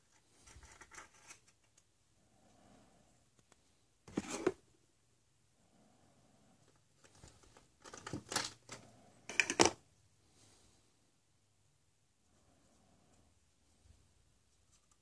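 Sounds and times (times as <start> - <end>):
plastic toys clattering and rustling: 0.0 - 1.8, 6.7 - 9.8.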